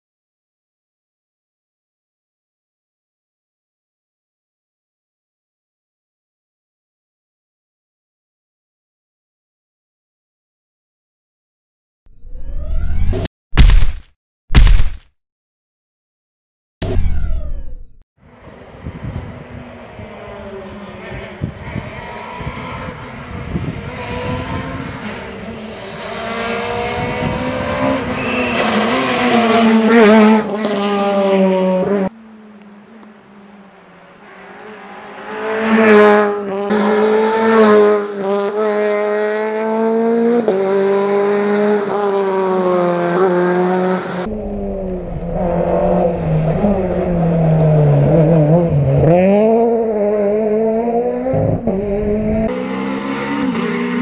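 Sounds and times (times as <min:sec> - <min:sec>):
rally car engine revving: 0:18.4 - 0:54.0.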